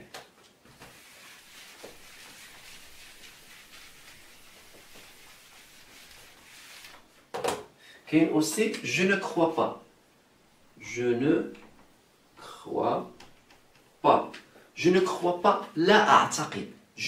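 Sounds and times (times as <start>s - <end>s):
eraser swishing on whiteboard: 0.7s - 7.3s.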